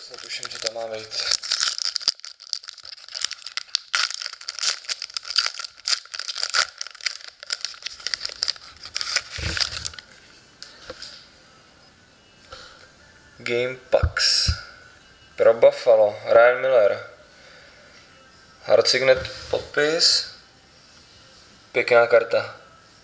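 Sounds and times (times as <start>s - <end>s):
foil wrapper crinkling: 0.0s - 10.2s.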